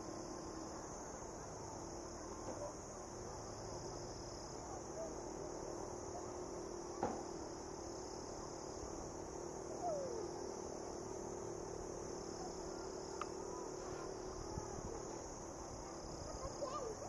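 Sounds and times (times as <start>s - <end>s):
faint low hum: 0.0s - 17.0s
insect chirring: 6.0s - 17.0s
faint click: 13.2s - 13.4s.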